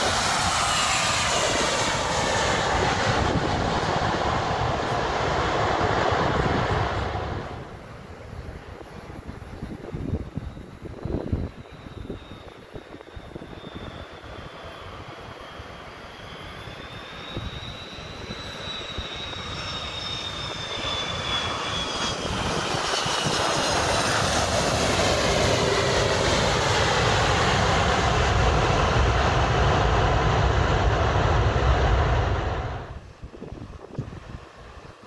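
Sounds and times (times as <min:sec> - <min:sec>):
jet engines whining: 0:00.0 - 0:35.0
reverse thrust rumble: 0:30.0 - 0:33.1.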